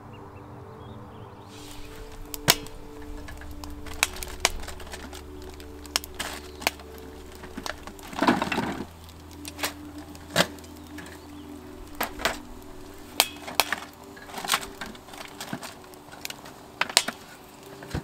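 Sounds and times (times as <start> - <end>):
soft background music: 0.0 - 18.0
rustling: 1.5 - 18.0
sharp cracks and knocks: 13.2 - 18.0.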